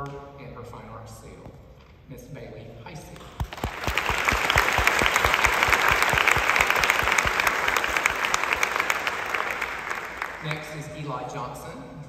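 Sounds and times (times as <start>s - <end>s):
close-by claps: 3.2s - 11.0s
audience applauding: 3.4s - 11.0s.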